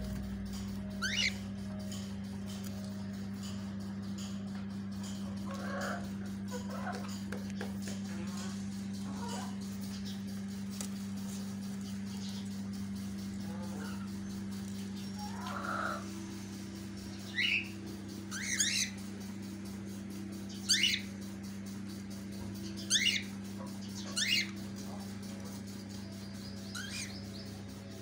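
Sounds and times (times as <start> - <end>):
low hum: 0.0 - 28.0
cockatiels chirping: 1.0 - 1.4, 18.3 - 19.0, 20.6 - 21.1, 22.8 - 25.0, 26.7 - 27.3.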